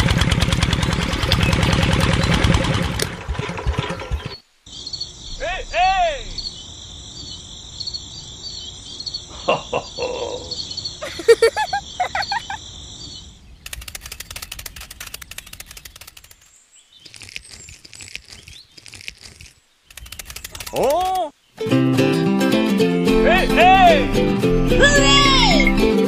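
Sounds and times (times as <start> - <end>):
bird chirps: 3.9 - 21.6
insect trilling: 4.7 - 21.4
dense rattle of clicks: 13.6 - 16.5.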